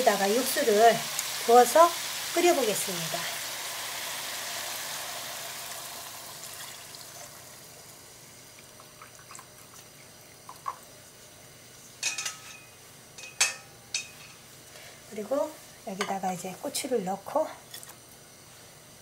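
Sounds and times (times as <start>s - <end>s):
broth splashing and hissing in pan: 0.0s - 12.0s.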